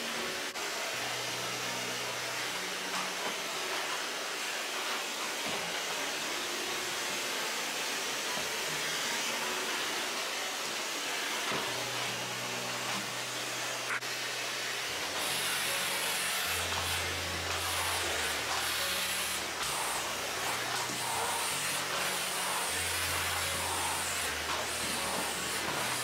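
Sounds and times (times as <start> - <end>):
vacuum cleaner running: 0.0 - 26.0.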